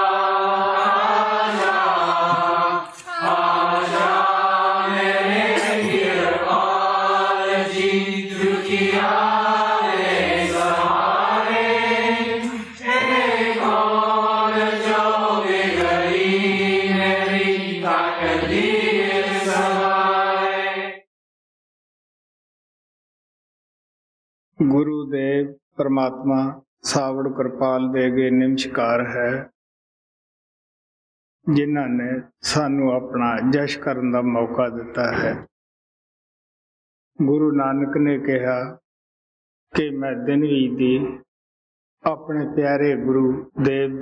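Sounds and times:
devotional chant in held notes: 0:00.0 - 0:21.0.

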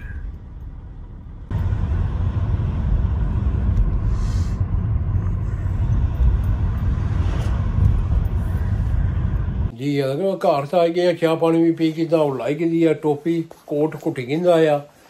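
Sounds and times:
car cabin road and engine rumble: 0:00.0 - 0:09.7.

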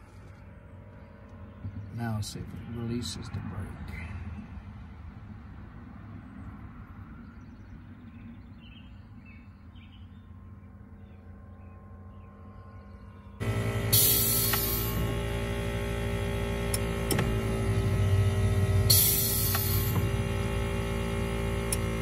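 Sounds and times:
low steady hum: 0:06.3 - 0:22.0
loud machine hum: 0:13.0 - 0:22.0
short hiss: 0:13.9 - 0:15.0.

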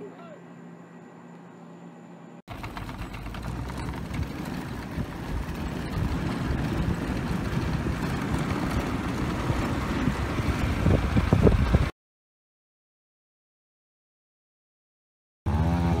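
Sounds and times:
tyre and road noise: 0:02.5 - 0:11.9
wind rumbling on microphone: 0:03.2 - 0:11.9.

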